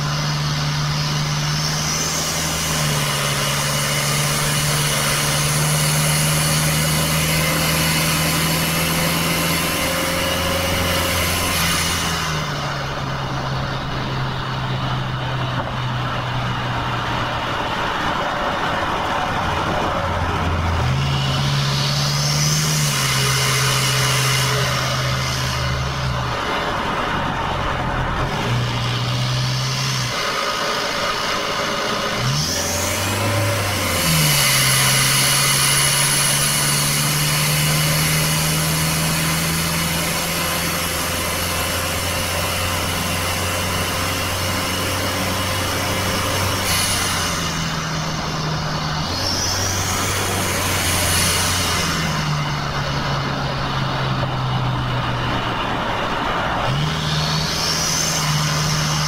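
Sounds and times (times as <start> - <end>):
diesel engine running hard: 0.0 - 59.0
road noise: 0.0 - 59.0.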